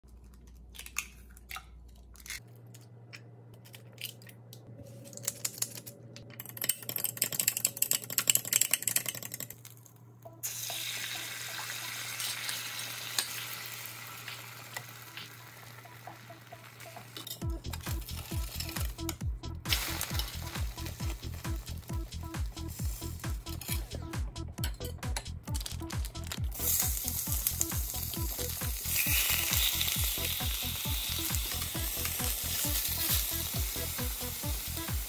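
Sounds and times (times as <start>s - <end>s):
egg sizzling in a hot pan: 10.4s - 17.2s, 26.5s - 35.0s.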